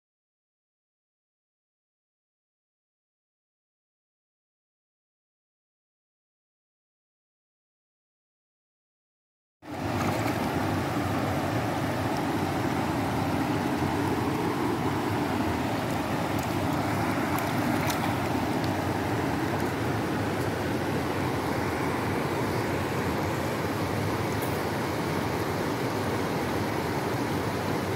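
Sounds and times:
river rushing over stones: 0:09.7 - 0:27.9.

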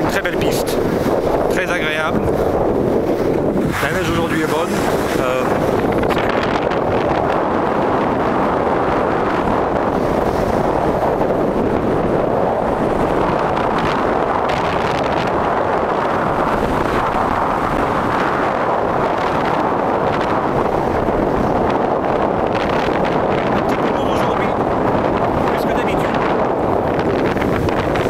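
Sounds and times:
wind buffeting microphone: 0:00.0 - 0:28.0
ski edges scraping: 0:03.7 - 0:05.5
skis sliding over snow: 0:03.8 - 0:05.5.

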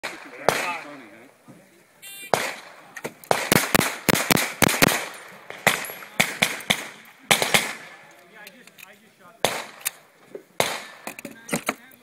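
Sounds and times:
pistol gunshots: 0:00.0 - 0:01.0, 0:02.3 - 0:07.9, 0:09.4 - 0:10.0, 0:10.6 - 0:11.1.

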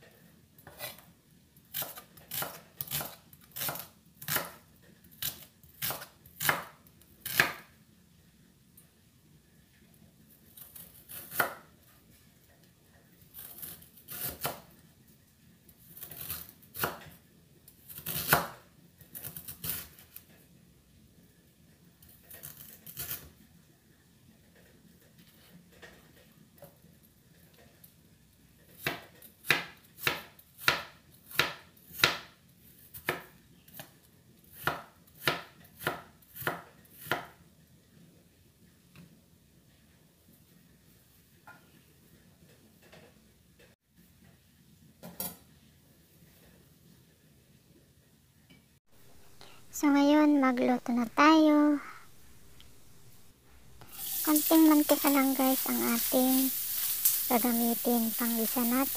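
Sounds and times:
knife slicing on wooden board: 0:00.6 - 0:01.0.

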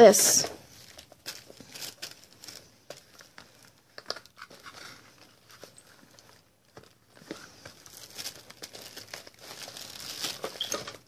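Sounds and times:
gift packaging rustling: 0:00.6 - 0:11.0.

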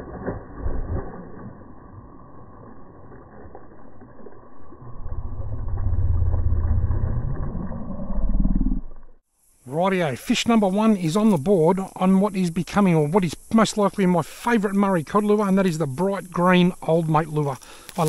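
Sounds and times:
low rumble: 0:00.0 - 0:09.2.

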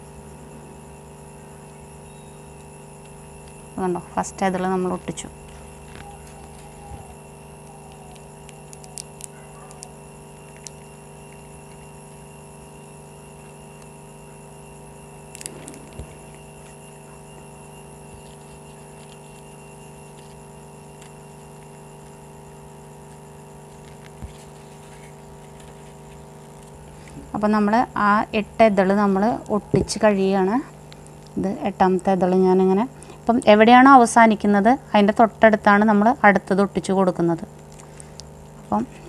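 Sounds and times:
background hum: 0:00.0 - 0:39.0
paper clicks and rustles: 0:05.4 - 0:12.0, 0:15.2 - 0:22.2, 0:23.1 - 0:27.2.

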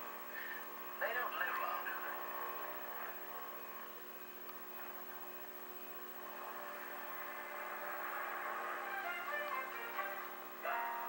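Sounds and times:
television hum and buzz: 0:00.0 - 0:11.0
muffled television programme sound: 0:00.1 - 0:11.0.

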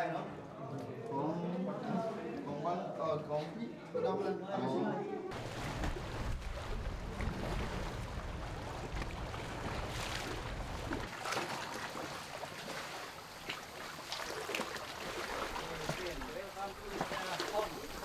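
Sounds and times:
water lapping around boat: 0:05.3 - 0:18.0
wind rumble on microphone: 0:05.4 - 0:11.1.

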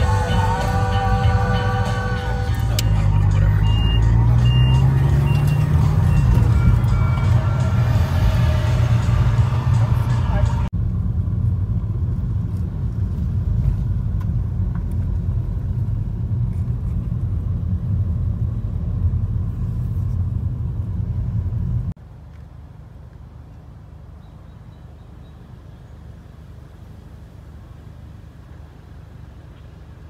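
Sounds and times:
car cabin rumble: 0:00.0 - 0:22.0.

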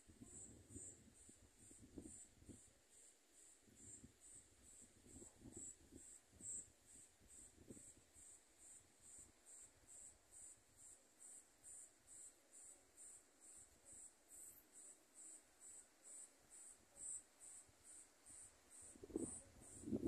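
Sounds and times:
cricket chirping faintly: 0:00.0 - 0:20.0.

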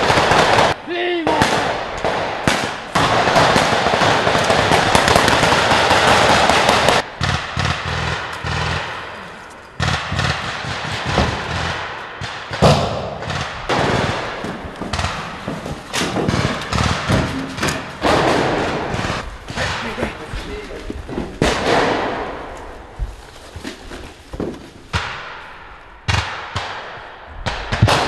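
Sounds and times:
rifle gunfire: 0:00.0 - 0:09.2, 0:09.8 - 0:19.9, 0:21.4 - 0:22.6, 0:26.1 - 0:28.0.

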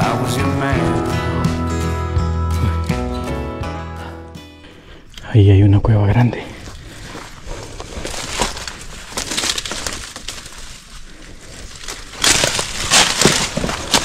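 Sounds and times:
footsteps crunching through undergrowth: 0:06.6 - 0:14.0.

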